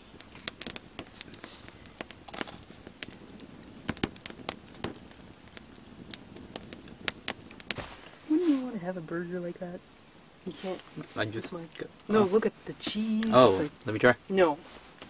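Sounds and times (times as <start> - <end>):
campfire crackling and popping: 0.0 - 15.0
low hiss of fire: 0.0 - 15.0.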